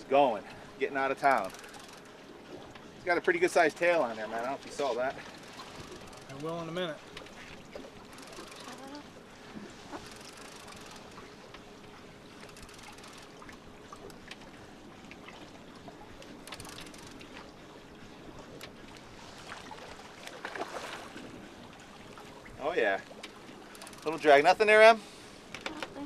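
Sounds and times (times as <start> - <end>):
outboard motor hum: 0.0 - 26.0
water lapping against boat hull: 0.0 - 26.0
small clicks: 8.1 - 8.9, 12.4 - 14.5, 16.4 - 17.2.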